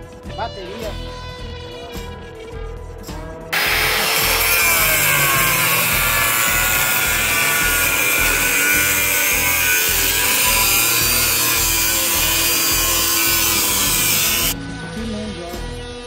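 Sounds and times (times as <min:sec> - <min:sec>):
background music: 0:00.0 - 0:16.0
angle grinder cutting steel: 0:03.6 - 0:14.6.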